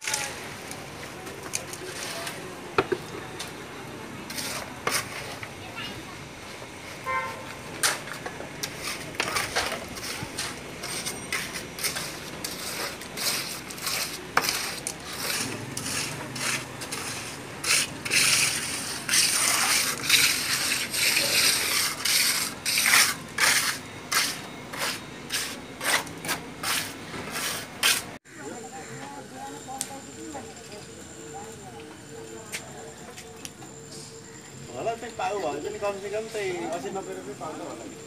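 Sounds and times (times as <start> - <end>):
trowels scraping mortar: 1.5 - 2.4, 4.3 - 5.5, 7.8 - 28.2.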